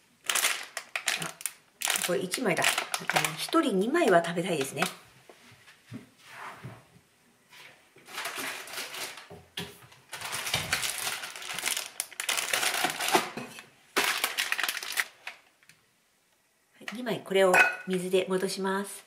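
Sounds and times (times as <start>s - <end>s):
plastic packaging crinkling: 0.2s - 5.0s, 8.0s - 9.3s, 10.0s - 15.7s.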